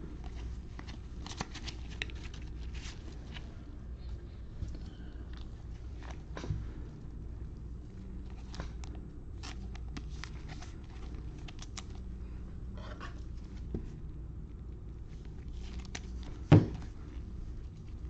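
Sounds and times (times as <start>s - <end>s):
plastic sleeve rustling and clicking: 0.2s - 3.4s, 8.3s - 12.0s, 15.3s - 16.9s
plastic holder thump: 16.5s - 16.8s.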